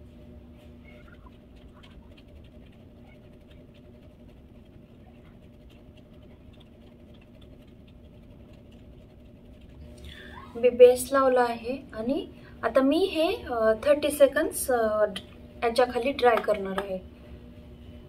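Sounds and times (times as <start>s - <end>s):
steady low hum: 0.0s - 18.0s
light ticks and scratches: 0.8s - 10.0s.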